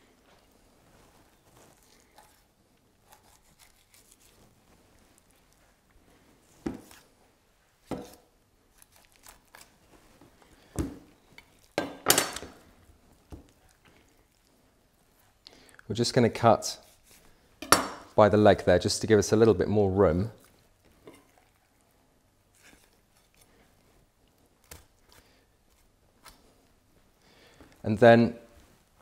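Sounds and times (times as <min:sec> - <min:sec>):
rustling: 0:00.0 - 0:08.0, 0:08.6 - 0:11.8.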